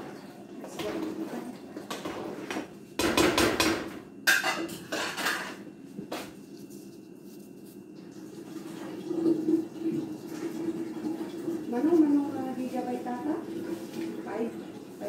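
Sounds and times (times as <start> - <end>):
metal utensil clattering on pot: 4.3 - 5.6.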